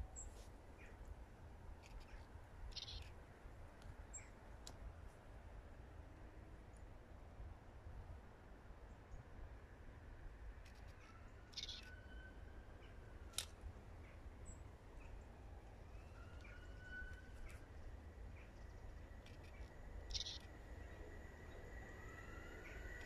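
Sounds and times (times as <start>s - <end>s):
faint steady high tone: 15.6s - 23.0s
bird harsh call: 19.4s - 20.5s.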